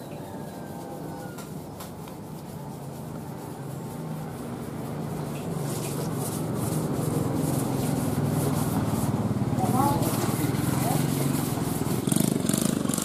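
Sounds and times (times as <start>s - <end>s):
vehicle engine approaching: 0.6s - 13.0s.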